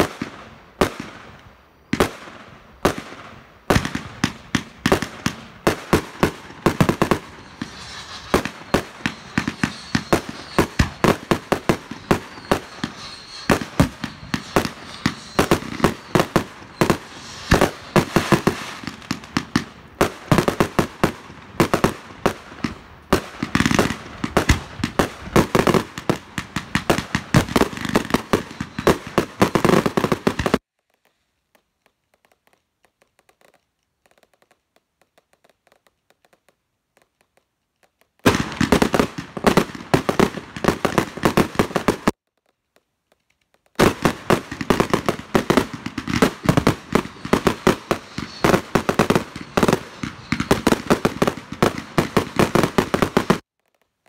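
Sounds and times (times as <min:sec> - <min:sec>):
firework aerial bursts: 0:02.0 - 0:30.6, 0:43.8 - 0:53.5.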